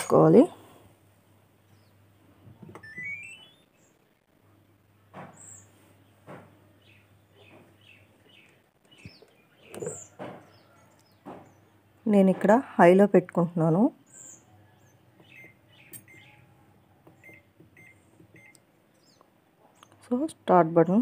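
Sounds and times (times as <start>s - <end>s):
washing machine power-on chime: 2.8s - 3.6s
small high chirps: 2.8s - 3.9s.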